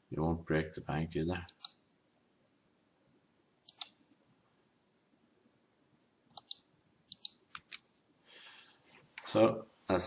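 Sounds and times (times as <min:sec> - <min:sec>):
computer mouse clicking: 0:01.4 - 0:01.8, 0:03.6 - 0:04.0, 0:06.3 - 0:07.8.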